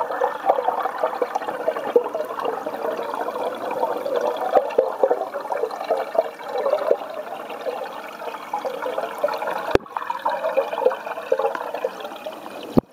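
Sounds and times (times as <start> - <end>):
fish tank water bubbling: 0.0 - 12.9.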